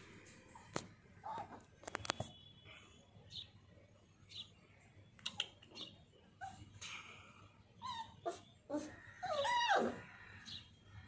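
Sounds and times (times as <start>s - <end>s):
puppies whimpering and whining: 7.8s - 10.1s.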